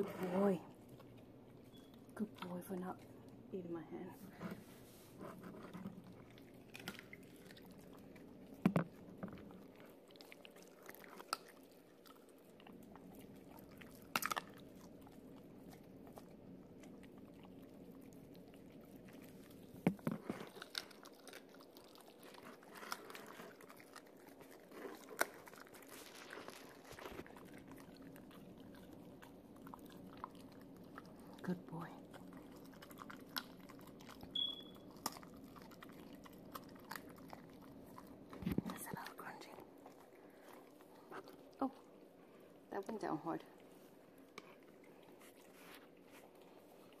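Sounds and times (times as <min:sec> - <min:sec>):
dog chewing: 0:00.0 - 0:03.5, 0:04.3 - 0:47.0
bone crunches: 0:13.8 - 0:14.7, 0:19.9 - 0:28.5.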